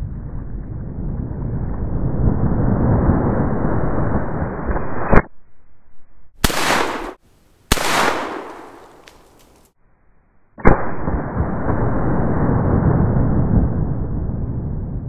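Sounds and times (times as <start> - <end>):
low rumble: 0.0 - 6.4, 10.1 - 15.0
rifle shots with echo: 6.4 - 9.6.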